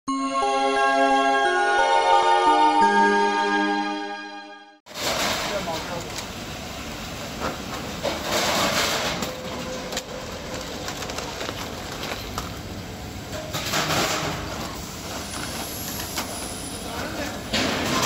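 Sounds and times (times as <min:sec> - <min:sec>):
steady background noise: 0:04.9 - 0:18.0.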